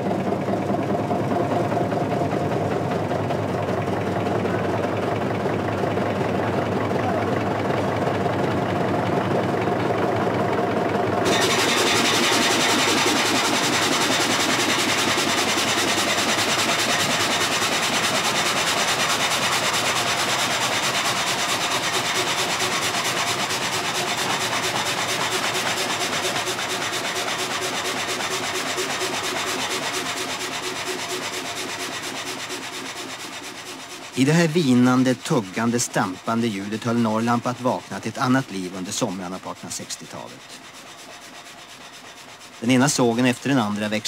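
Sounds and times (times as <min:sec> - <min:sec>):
mill machinery running: 0:00.0 - 0:44.0
saw blade rasping through log: 0:11.2 - 0:44.0.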